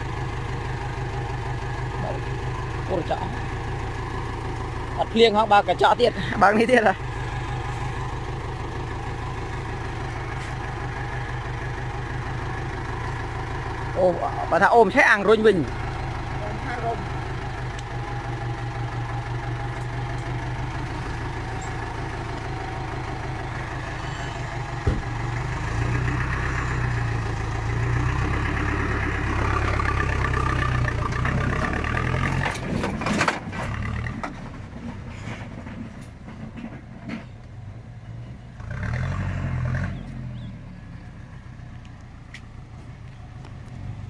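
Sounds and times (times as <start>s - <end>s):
vehicle engine running: 0.0s - 44.0s
sharp knocks: 24.8s - 25.2s.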